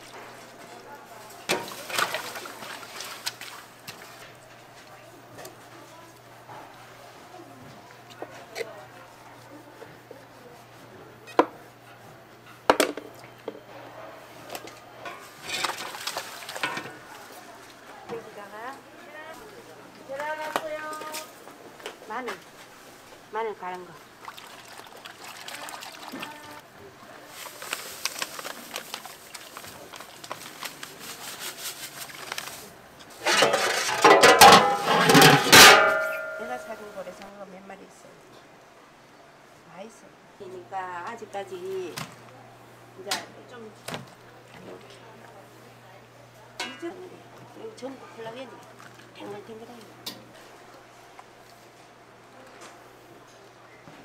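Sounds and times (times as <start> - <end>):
plastic pouch crackling: 27.3 - 32.7
metal pot and lid clattering: 33.2 - 36.7.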